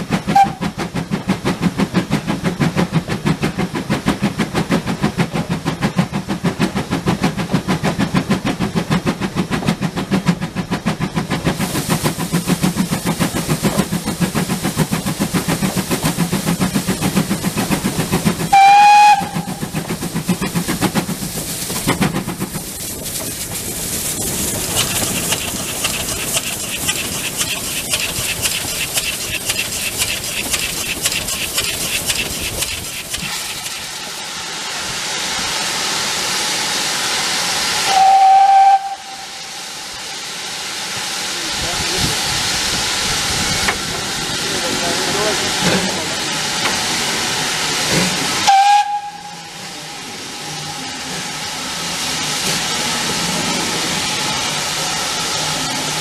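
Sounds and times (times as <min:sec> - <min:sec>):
train rattle: 0:00.0 - 0:34.4, 0:40.9 - 0:56.0
steam hissing: 0:00.0 - 0:56.0
steam locomotive exhaust beating: 0:00.0 - 0:56.0
shrill steam whistle toot: 0:00.3 - 0:00.7, 0:18.5 - 0:19.6, 0:37.8 - 0:39.6, 0:48.4 - 0:49.6.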